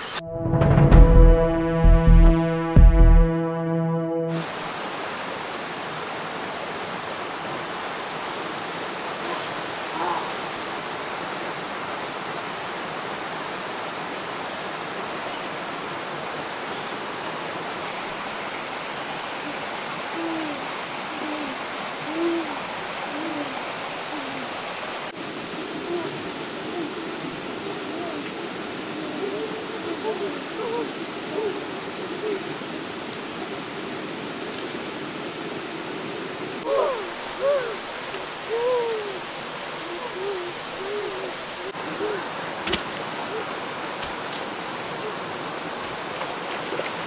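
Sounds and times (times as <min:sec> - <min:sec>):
title music: 0:00.0 - 0:04.5
river rushing: 0:04.3 - 0:47.0
short low calls: 0:36.6 - 0:42.3.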